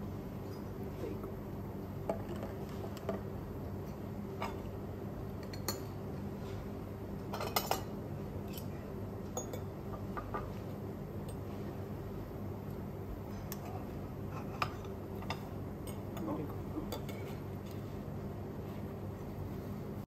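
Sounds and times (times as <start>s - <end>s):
steady low hum: 0.0s - 20.0s
cutlery clinking on plates: 16.9s - 17.4s.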